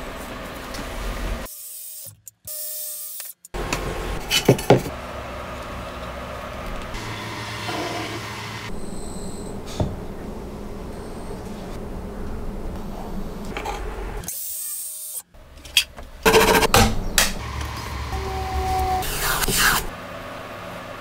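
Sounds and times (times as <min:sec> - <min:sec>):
plywood rubbing on work surface: 0:07.5 - 0:08.4.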